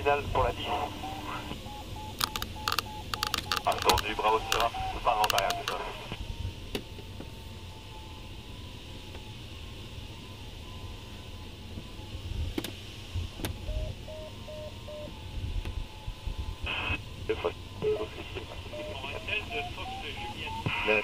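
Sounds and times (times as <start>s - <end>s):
airflow rush in cockpit: 0.0s - 21.0s
short beeps: 0.6s - 5.8s, 13.6s - 15.2s, 17.8s - 21.0s
sharp clicks: 2.1s - 5.8s.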